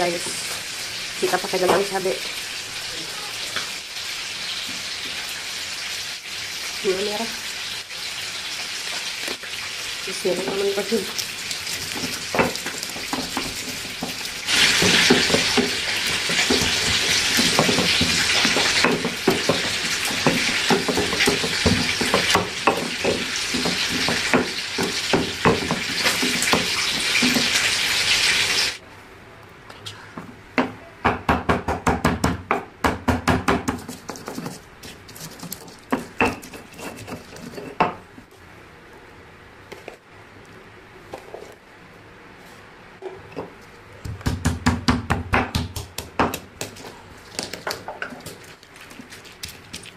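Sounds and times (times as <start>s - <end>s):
pestle crushing in stone mortar: 10.5s - 27.6s, 31.0s - 38.0s, 44.0s - 49.9s.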